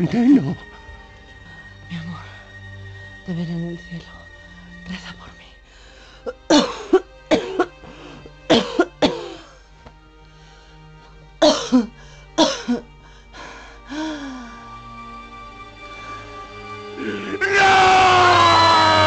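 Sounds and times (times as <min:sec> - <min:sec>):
soft background music: 0:00.0 - 0:19.0
person coughing: 0:06.3 - 0:07.8, 0:08.5 - 0:09.5, 0:11.4 - 0:12.9.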